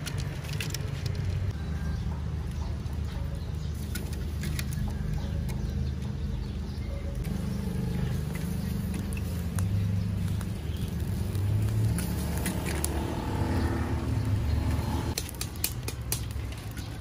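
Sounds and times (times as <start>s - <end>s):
faint crackles and clicks: 7.2s - 13.2s.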